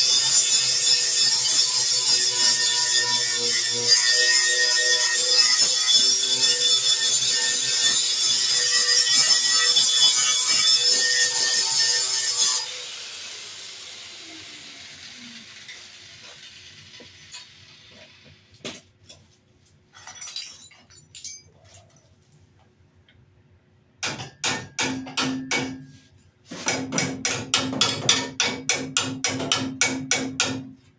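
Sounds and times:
angle grinder grinding steel: 0.0s - 18.2s.

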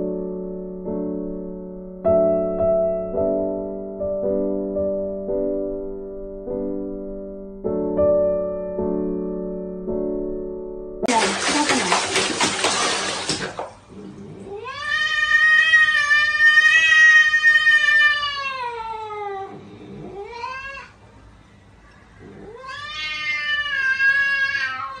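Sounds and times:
cat yowling: 14.5s - 21.0s, 22.3s - 25.0s.

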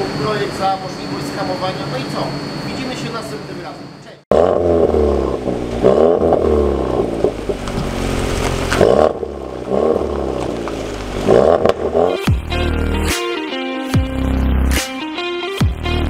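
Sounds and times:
car engine revving: 4.3s - 13.0s.

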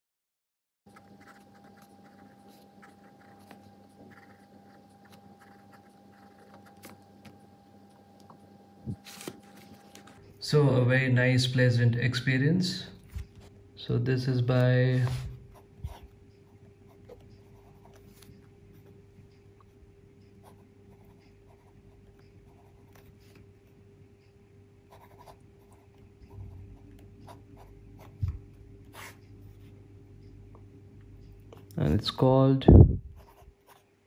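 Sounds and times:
pen nib scratching on paper: 0.9s - 7.4s, 20.4s - 23.4s, 24.9s - 29.7s, 33.2s - 33.9s
low steady hum: 0.9s - 34.0s.

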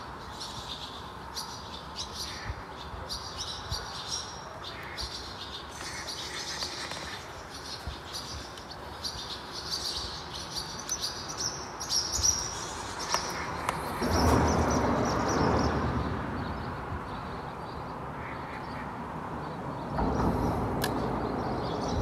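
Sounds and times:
birds chirping: 0.0s - 22.0s
broad rush of noise: 0.0s - 22.0s.

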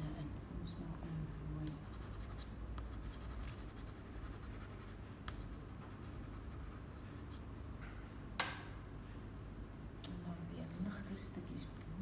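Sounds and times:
pastel stick scratching on paper: 1.8s - 7.5s.

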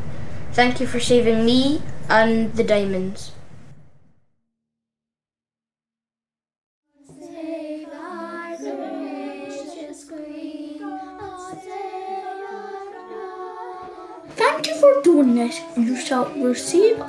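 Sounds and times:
children singing: 7.0s - 17.0s.

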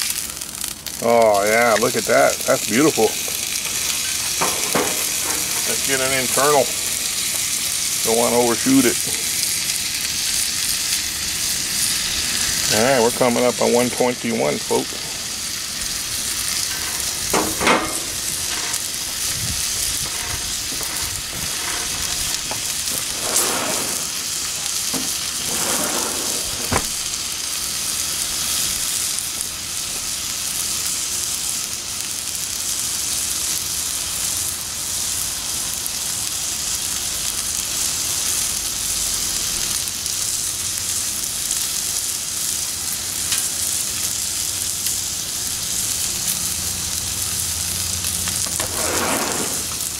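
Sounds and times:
steak sizzling on a griddle: 0.0s - 49.9s
loud crackles: 15.9s - 27.7s, 48.0s - 49.9s.

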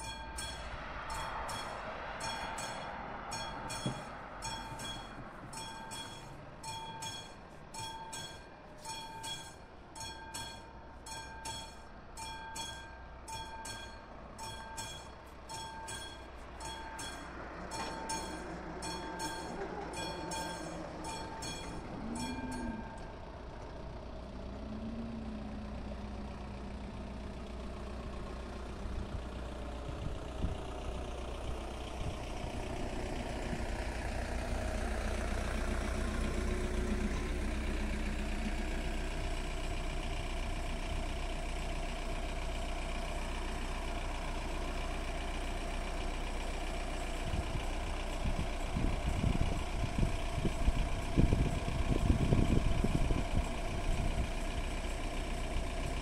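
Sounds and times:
level crossing bell ringing: 0.0s - 23.2s
approaching train rumble: 0.0s - 56.0s.

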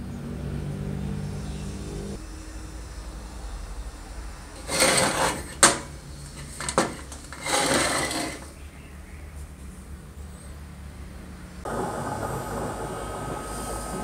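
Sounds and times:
stove scraping rustles: 4.6s - 8.6s.

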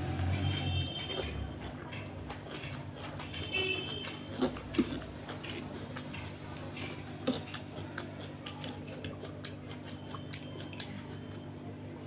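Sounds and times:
chewing noodles: 0.0s - 11.8s
wet mouth clicks: 4.0s - 11.0s.

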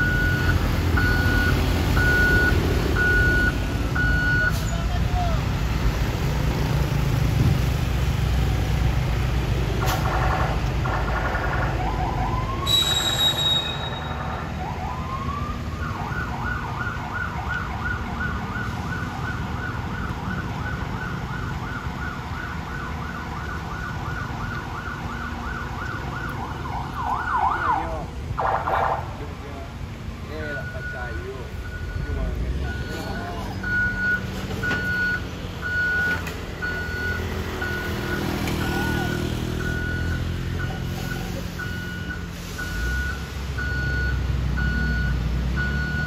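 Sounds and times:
heavy truck engines running: 0.0s - 46.0s
police siren yelping: 9.9s - 29.2s, 30.6s - 45.0s.

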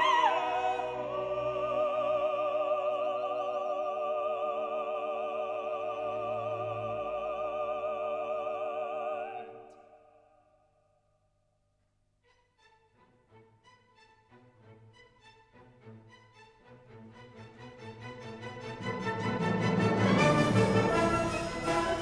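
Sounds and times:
operatic singer with vibrato: 0.0s - 10.3s, 20.7s - 22.0s
orchestral chords: 16.9s - 22.0s.

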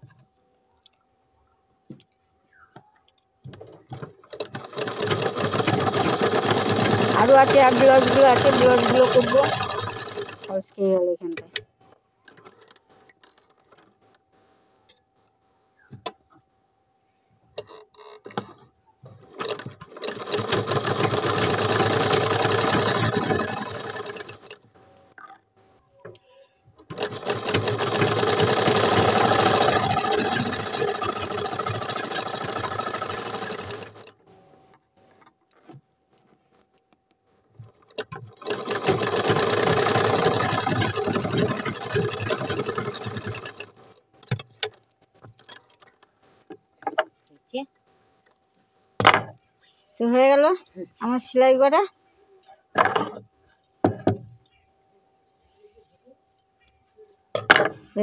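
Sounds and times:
sewing machine stitching: 3.6s - 10.7s, 19.2s - 24.6s, 26.8s - 34.2s, 37.6s - 44.8s.

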